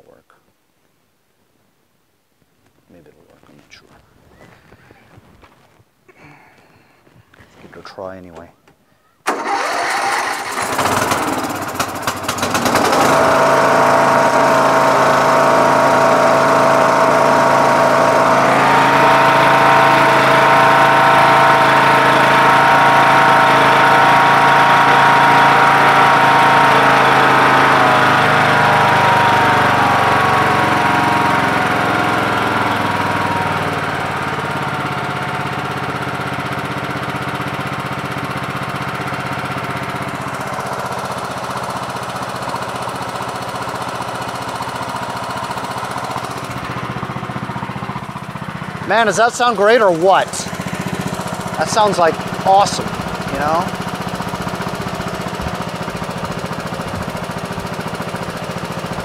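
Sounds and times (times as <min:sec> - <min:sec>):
lawn tractor engine running: 0:09.2 - 0:59.0.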